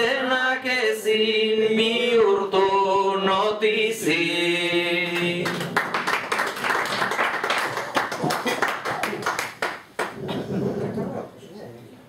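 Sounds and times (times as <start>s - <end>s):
man singing unaccompanied: 0.0s - 5.6s
audience applause: 5.4s - 10.6s.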